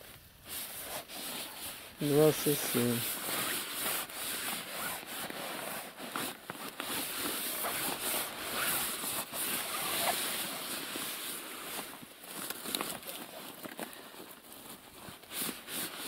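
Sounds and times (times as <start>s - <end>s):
grass scrubbing wet floor: 0.5s - 11.6s.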